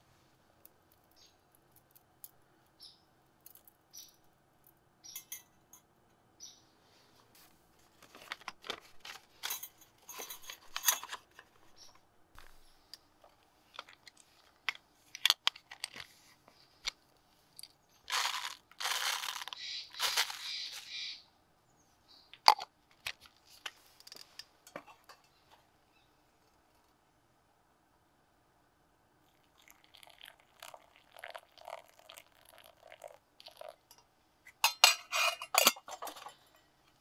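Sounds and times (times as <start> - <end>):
ground coffee pouring: 18.1 - 20.5, 29.3 - 33.9
paper filter crinkling: 18.1 - 20.9.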